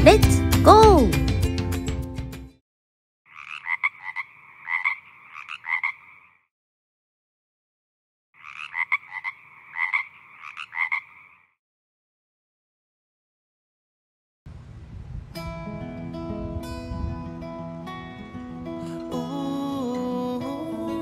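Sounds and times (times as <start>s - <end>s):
frog croaking: 3.3s - 6.5s, 8.4s - 11.6s.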